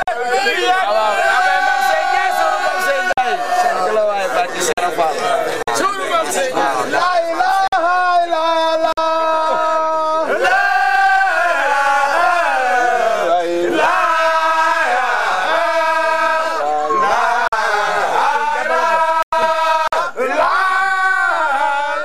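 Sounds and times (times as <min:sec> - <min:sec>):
men singing a chant: 0:06.1 - 0:22.0.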